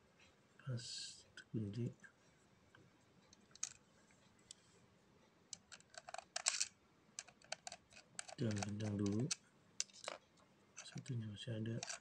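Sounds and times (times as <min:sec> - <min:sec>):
small metal clicks: 0:05.5 - 0:10.2, 0:11.8 - 0:12.0
screwdriver scraping: 0:11.8 - 0:12.0.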